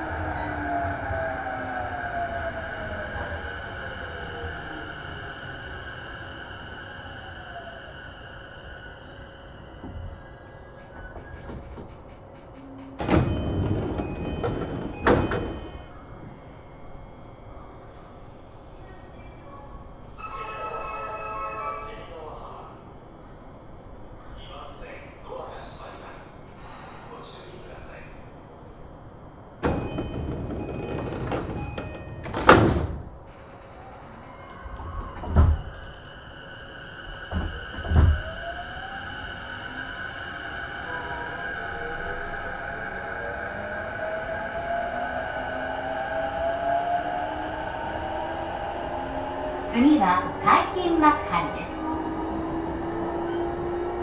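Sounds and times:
train doors knocking: 10.7s - 15.8s, 29.6s - 35.8s, 37.3s - 38.4s.

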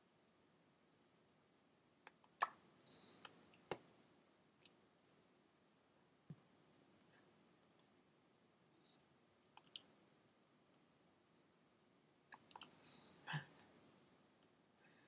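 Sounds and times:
short high beep: 12.9s - 13.3s.

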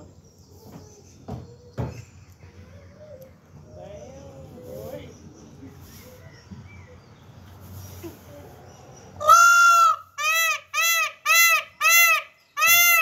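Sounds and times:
peacock calling: 7.7s - 13.0s.

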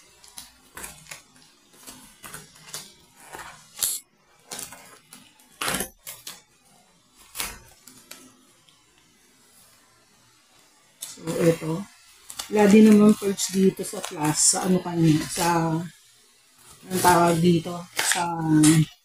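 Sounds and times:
crinkling and scraping of cardboard: 0.0s - 9.8s, 16.6s - 19.0s
scissors snipping tape: 2.2s - 4.8s, 16.9s - 18.9s.

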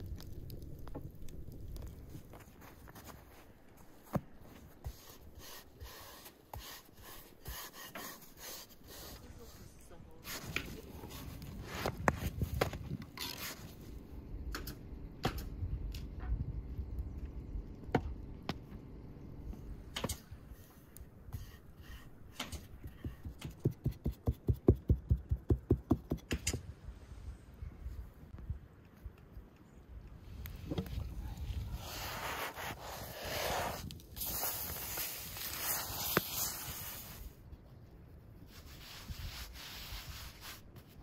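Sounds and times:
soft rapid thumps: 22.8s - 26.4s.

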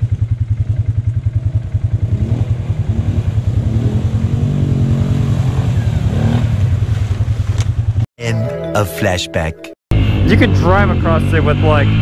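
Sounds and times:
atv engine idling: 0.0s - 4.9s, 6.2s - 8.0s
atv engine revving: 0.0s - 8.1s, 9.9s - 12.0s.

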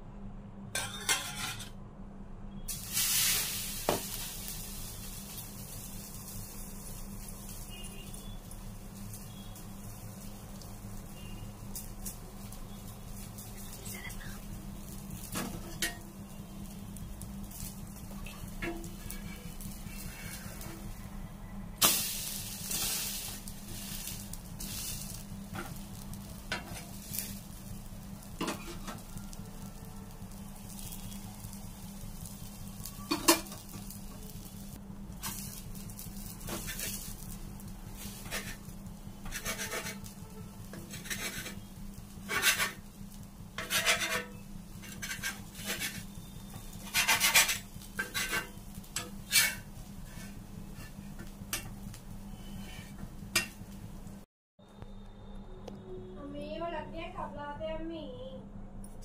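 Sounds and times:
steel spatula scraping griddle: 0.8s - 1.8s, 14.9s - 16.8s, 17.5s - 21.0s, 21.8s - 27.6s, 28.2s - 29.7s, 32.9s - 34.5s, 35.2s - 53.6s
food sizzling in oil: 2.6s - 54.2s
spatula tapping and scraping pan: 18.2s - 19.6s, 38.0s - 40.1s, 40.7s - 42.9s, 43.6s - 51.9s.

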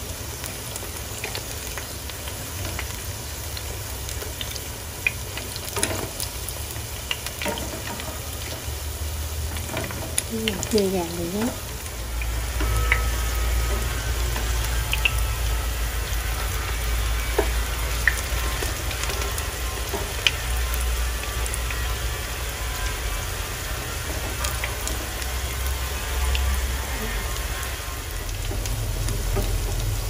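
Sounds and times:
fritters sizzling in hot oil: 0.0s - 30.0s
low rumble: 8.0s - 30.0s.

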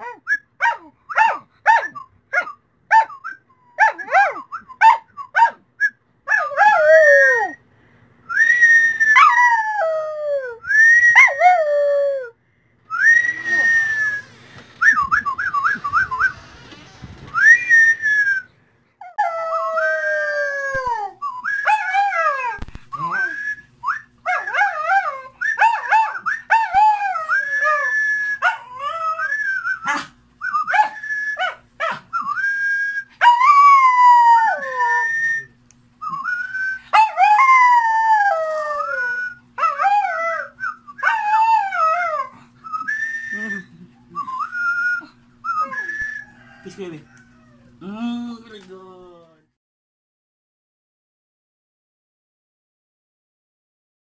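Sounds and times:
small dog howling: 9.1s - 12.3s, 19.0s - 22.6s, 24.3s - 30.1s, 33.2s - 35.4s, 36.8s - 42.4s, 47.1s - 47.8s.

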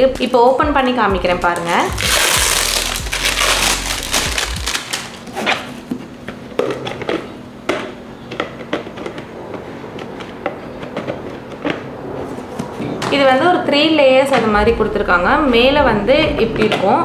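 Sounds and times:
plastic crinkling and rustling: 1.6s - 7.3s.

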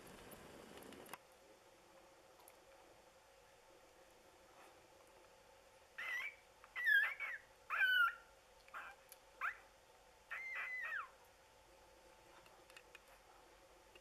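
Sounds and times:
faint steady hum: 0.0s - 14.0s
puppies squeaking and whining: 6.0s - 9.6s, 10.3s - 11.2s.

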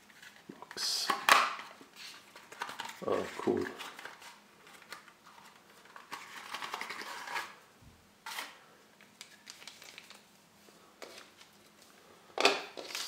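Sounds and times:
foil bag crinkle: 9.2s - 10.3s.

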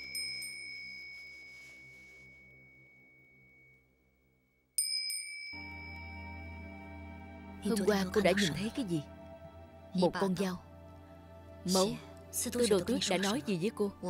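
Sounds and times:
handbell ringing: 0.0s - 1.8s, 4.8s - 6.0s
low background music: 5.6s - 14.0s.

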